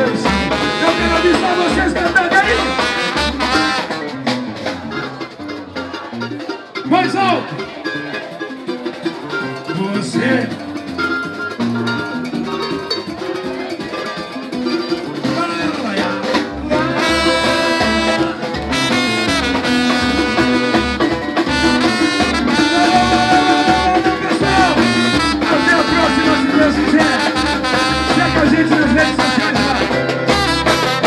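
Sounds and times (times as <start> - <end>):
samba band playing: 0.0 - 31.0
steady low drum beat: 15.2 - 31.0.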